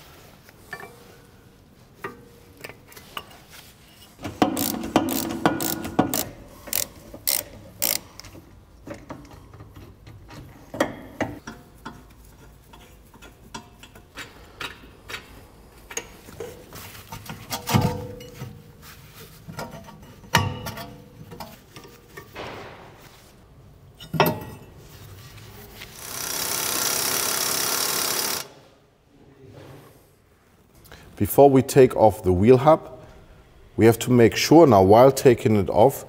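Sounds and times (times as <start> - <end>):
ratchet wrench clicking: 4.4 - 8.4, 26.0 - 28.5.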